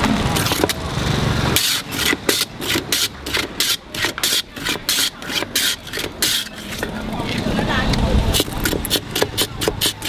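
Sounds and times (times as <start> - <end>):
ice rasping on shaver blade: 1.6 - 7.5, 8.3 - 10.0.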